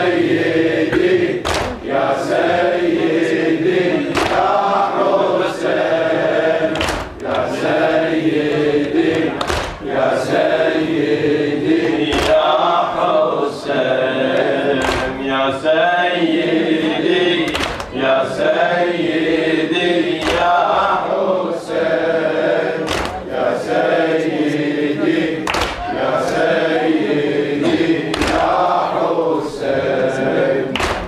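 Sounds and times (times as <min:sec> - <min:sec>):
men chanting in unison: 0:00.0 - 0:31.0
collective chest slaps: 0:00.9 - 0:01.8, 0:04.1 - 0:04.5, 0:06.7 - 0:07.4, 0:09.1 - 0:09.8, 0:14.8 - 0:15.2, 0:17.5 - 0:17.9, 0:20.2 - 0:20.6, 0:22.8 - 0:23.2, 0:25.4 - 0:25.8, 0:27.7 - 0:28.6, 0:30.7 - 0:31.0.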